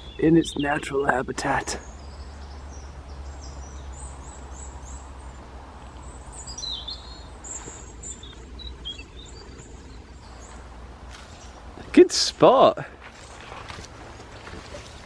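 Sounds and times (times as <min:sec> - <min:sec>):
low steady rumble: 0:00.0 - 0:15.0
small birds chirping: 0:00.0 - 0:15.0.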